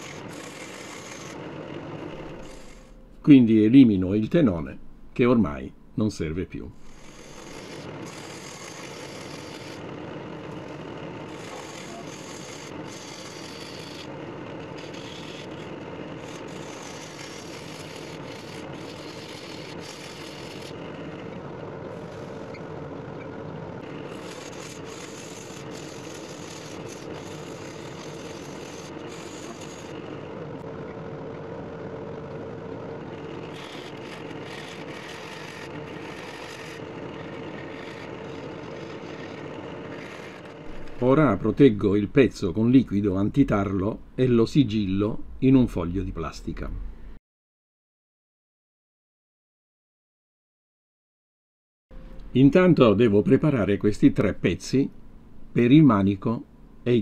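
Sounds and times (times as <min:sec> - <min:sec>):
gouge cutting hiss: 0:00.0 - 0:03.0, 0:06.8 - 0:10.0, 0:10.6 - 0:21.3, 0:23.8 - 0:30.3, 0:33.1 - 0:41.4
wood lathe humming: 0:00.0 - 0:05.4, 0:06.7 - 0:42.6.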